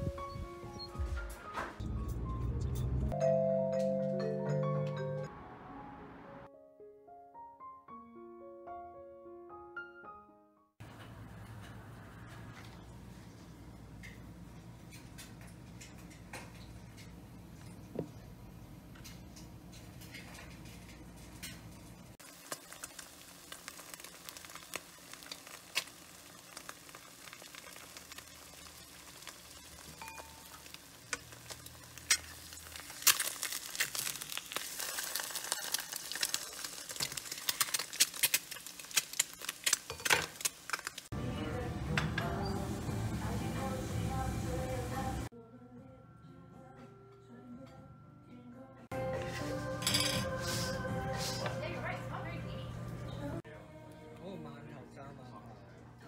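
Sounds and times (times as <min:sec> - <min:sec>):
eggs sizzling and crackling in oil: 0:18.9 - 0:41.2.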